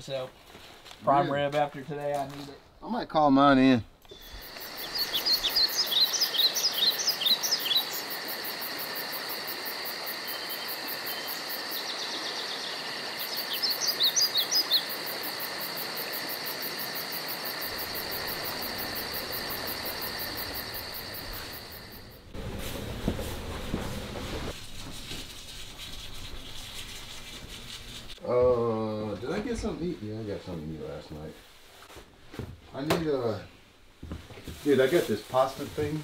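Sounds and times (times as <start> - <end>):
bird chirping: 4.1 - 8.2, 10.3 - 15.0
insect chorus drone: 4.1 - 22.4.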